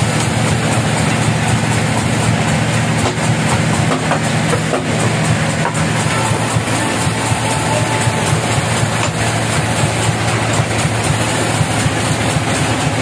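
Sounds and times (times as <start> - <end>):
sawmill machinery humming: 0.0 - 13.0.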